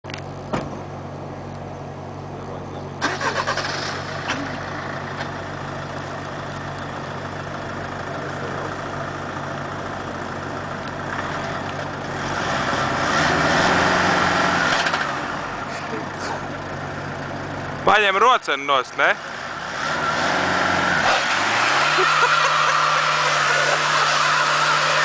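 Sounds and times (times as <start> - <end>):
minivan engine idling: 0.1 - 12.3, 15.0 - 19.7.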